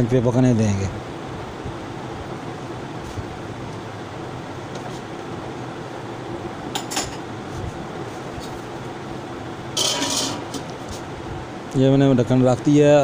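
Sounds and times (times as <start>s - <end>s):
steady background hiss: 0.0s - 13.0s
ladle clinking: 9.8s - 10.7s
metal lid clattering on pot: 9.8s - 10.7s.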